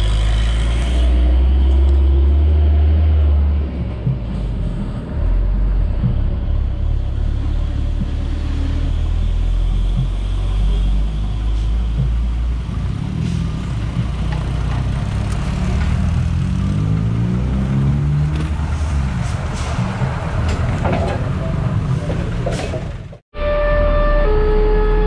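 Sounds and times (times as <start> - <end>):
vehicle motor rumbling: 0.0 - 23.2
whine climbing in pitch: 23.4 - 25.0.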